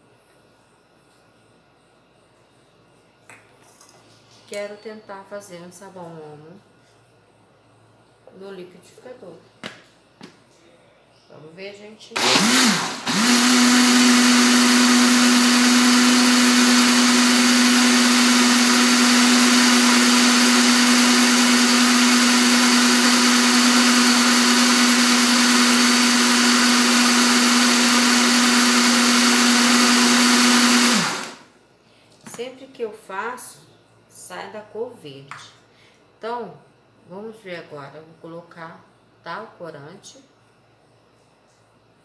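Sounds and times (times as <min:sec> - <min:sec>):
blender motor running: 0:12.2 - 0:31.5.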